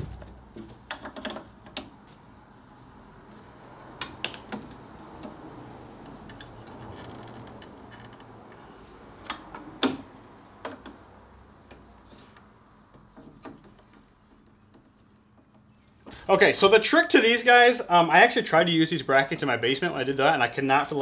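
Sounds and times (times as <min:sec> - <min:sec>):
plastic pipe clicks and knocks: 0:00.0 - 0:02.2, 0:04.0 - 0:05.4, 0:09.2 - 0:11.0, 0:13.0 - 0:15.6
soft handling noise: 0:10.5 - 0:16.6.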